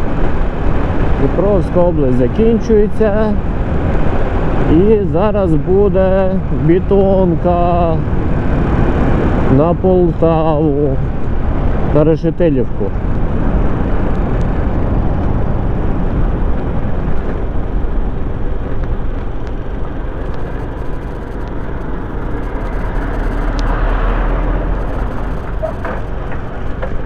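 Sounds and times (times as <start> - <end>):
road noise: 0.0 - 27.0
wind rushing over microphone: 0.0 - 27.0
motorcycle engine rumble: 12.8 - 27.0.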